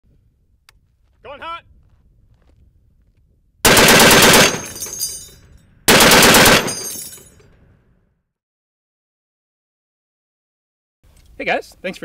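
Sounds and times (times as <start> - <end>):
gunfire echo: 3.7 - 5.0, 5.9 - 7.0
heavy machine gun bursts: 3.7 - 5.0, 5.9 - 6.9.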